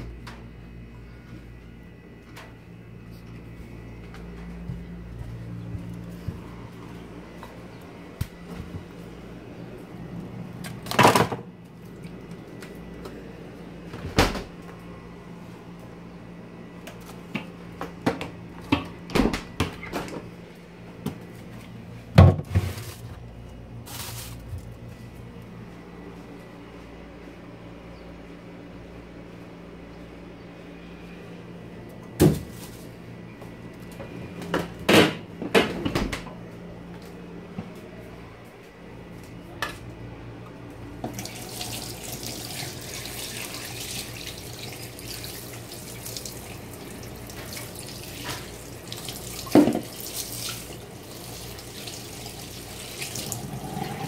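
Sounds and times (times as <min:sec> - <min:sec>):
steady low hum: 0:00.0 - 0:54.0
refrigerator door opening: 0:13.8 - 0:14.6, 0:18.7 - 0:20.3, 0:34.5 - 0:36.4
refrigerator door shutting with knock: 0:14.0 - 0:14.6, 0:19.1 - 0:20.2, 0:32.2 - 0:32.5.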